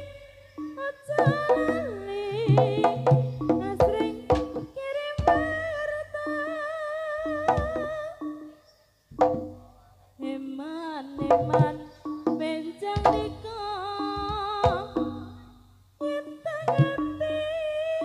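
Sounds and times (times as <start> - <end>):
wavering melody line: 0.0 - 9.8
drum strokes: 0.6 - 5.9, 7.3 - 8.4, 9.1 - 9.8, 11.2 - 15.6, 16.6 - 17.2.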